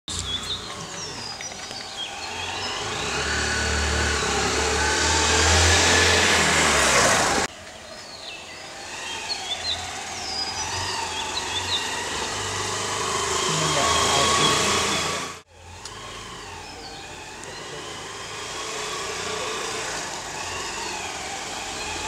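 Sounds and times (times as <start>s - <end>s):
birds chirping: 0.1s - 15.4s, 16.0s - 22.0s.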